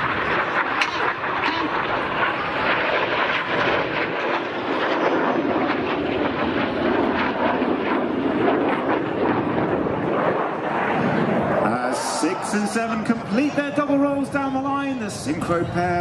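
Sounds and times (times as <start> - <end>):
jet engines roaring past: 0.0 - 16.0.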